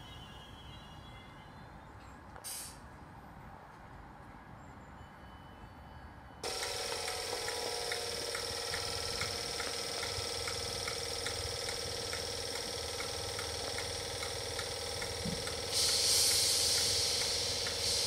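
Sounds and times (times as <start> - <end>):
electric train humming: 6.4 - 18.0
faint ticking: 6.4 - 18.0.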